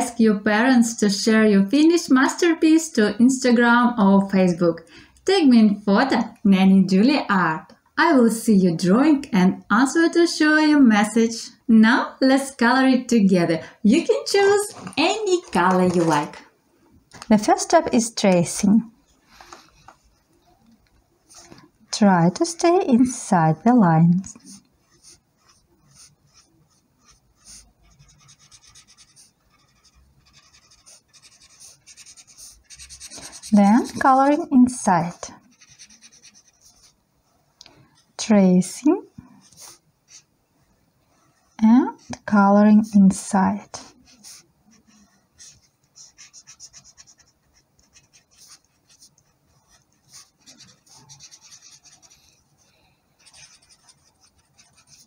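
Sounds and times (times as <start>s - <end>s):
marker scratching on paper: 14.3s - 16.3s, 24.2s - 37.0s, 39.4s - 40.3s, 43.6s - 55.0s.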